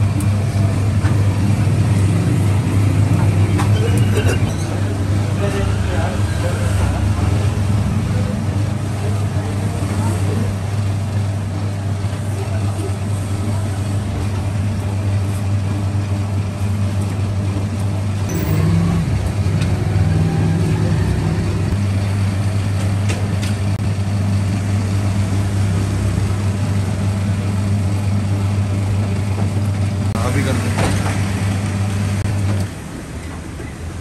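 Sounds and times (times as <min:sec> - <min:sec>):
dough mixer motor humming: 0:06.9 - 0:30.1.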